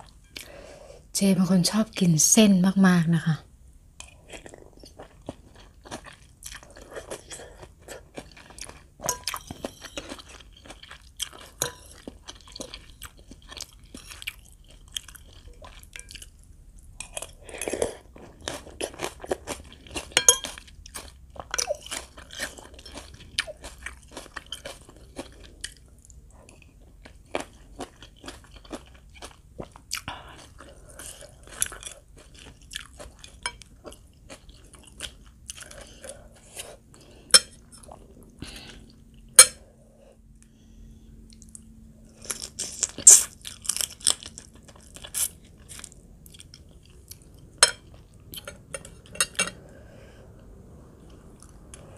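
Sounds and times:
chewing: 4.0 - 39.7, 41.2 - 51.9.

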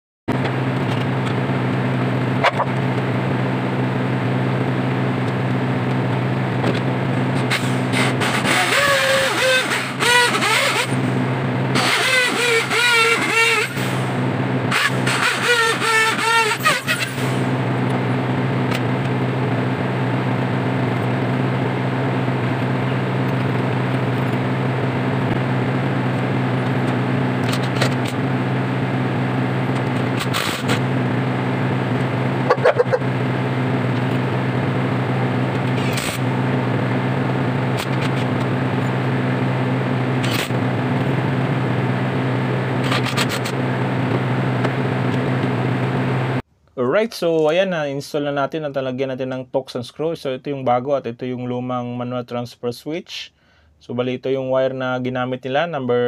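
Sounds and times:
low machine hum: 0.3 - 46.5
power drill whirring: 7.4 - 11.1, 11.8 - 14.0, 14.7 - 17.4.

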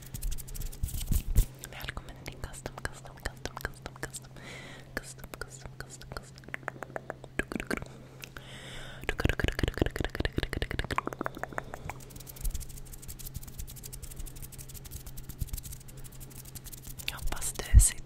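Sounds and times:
hands rubbing at microphone: 0.0 - 1.5, 11.6 - 17.7.

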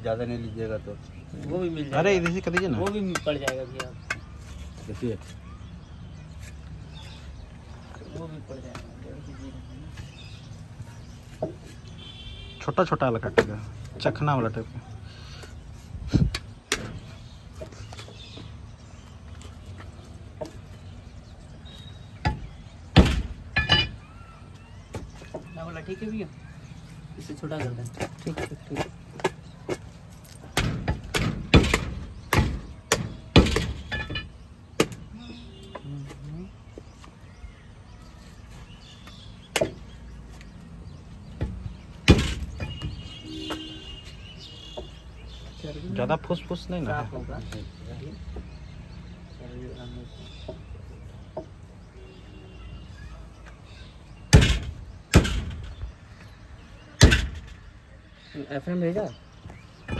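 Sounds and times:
cleaver chopping meat on wood: 1.7 - 4.4, 30.5 - 33.8, 39.5 - 39.8.

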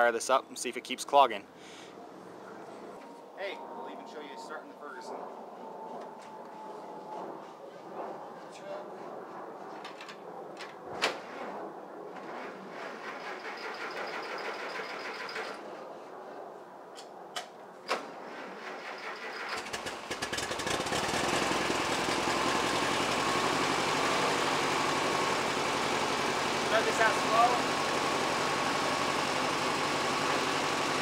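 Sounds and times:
tractor engine running: 19.4 - 31.0.

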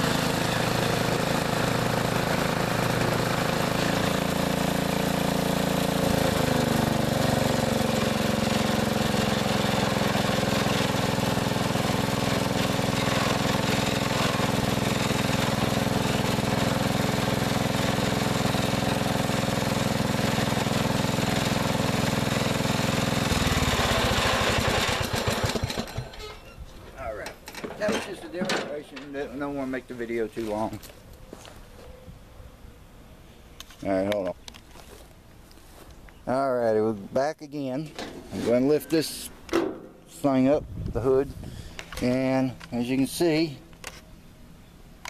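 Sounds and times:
lawn tractor engine running: 0.0 - 29.6.

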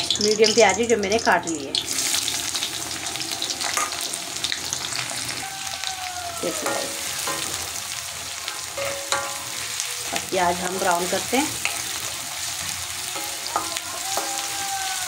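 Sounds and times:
onion sizzling in hot oil: 0.0 - 15.0
spatula scraping and tapping pan: 8.5 - 9.7.

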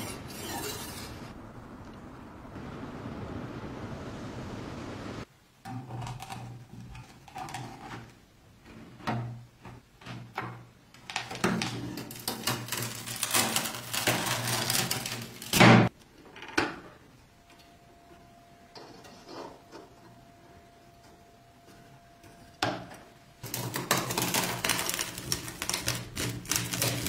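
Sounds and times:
blade crackling through crust: 12.0 - 15.6, 23.4 - 27.0.

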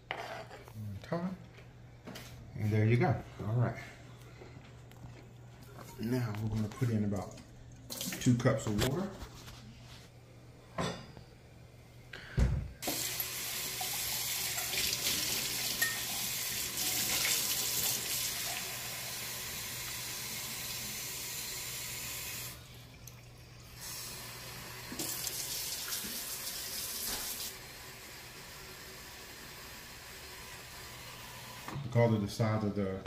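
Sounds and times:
faucet running water into cup: 7.9 - 8.3, 12.8 - 31.7.

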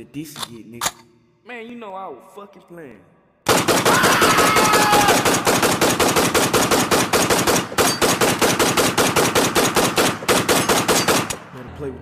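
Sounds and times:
automatic gunfire: 3.5 - 11.4.

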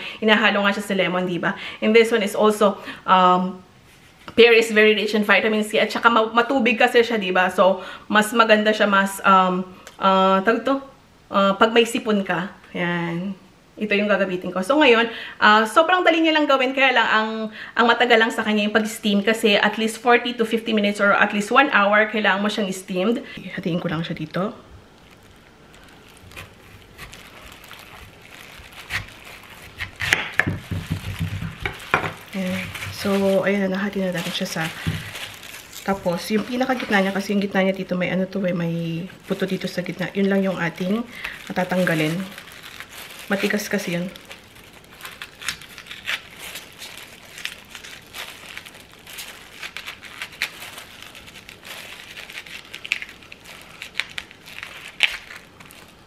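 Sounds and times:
plastic gloves crinkling: 21.2 - 56.0
knife crunching through pear: 25.8 - 33.1, 44.2 - 48.2.

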